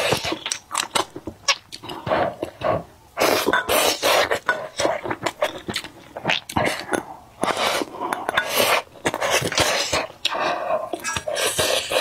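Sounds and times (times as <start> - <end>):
wet slurping and sucking: 1.8 - 5.4, 6.2 - 12.0.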